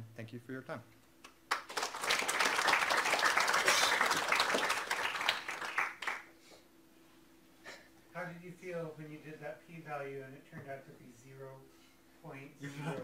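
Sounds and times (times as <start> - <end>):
audience applauding: 1.5 - 6.3.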